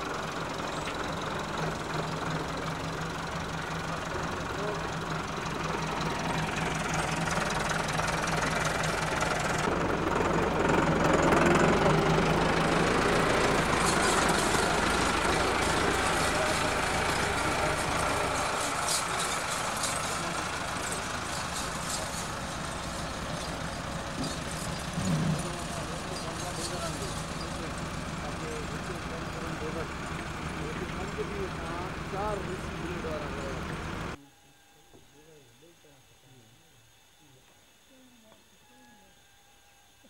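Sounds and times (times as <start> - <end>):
engine humming: 0.0 - 34.2
background voices: 11.2 - 34.2.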